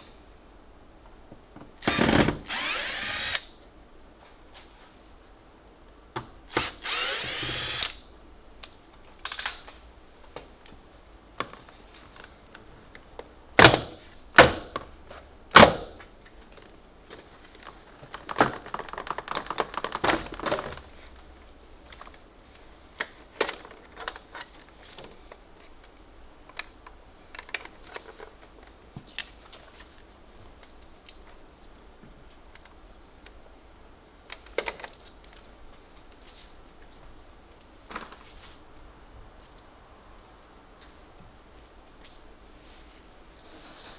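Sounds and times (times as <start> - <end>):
cordless drill running: 1.8 - 3.4, 6.5 - 8.0
plastic rubbing and rattling: 17.2 - 21.2.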